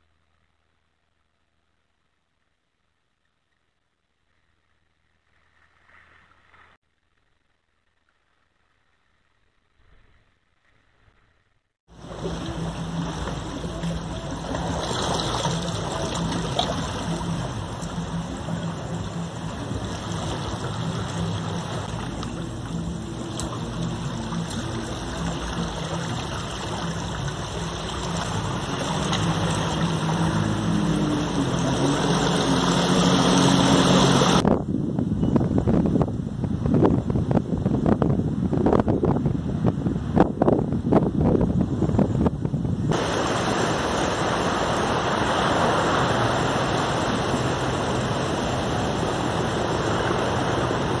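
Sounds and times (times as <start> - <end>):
sea water rushing over rocks: 11.9 - 34.4, 42.9 - 51.0
low steady hum: 11.9 - 51.0.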